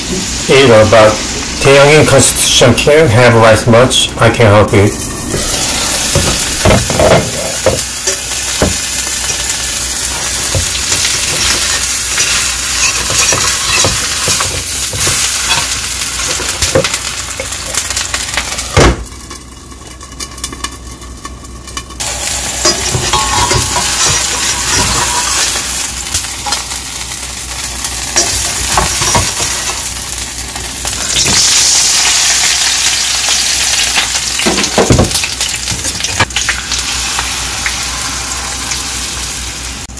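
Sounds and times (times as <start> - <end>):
utensils and lid clinking: 5.4 - 17.5, 22.0 - 26.8, 28.1 - 29.9
pancake sizzling in oil: 20.0 - 34.5, 35.2 - 39.9.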